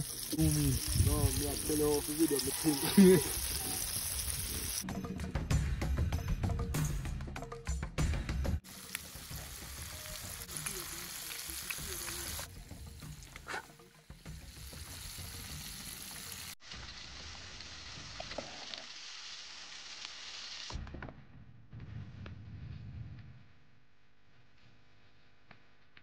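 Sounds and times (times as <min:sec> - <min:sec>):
chicken sizzling in oil: 0:00.0 - 0:04.8, 0:08.6 - 0:20.8.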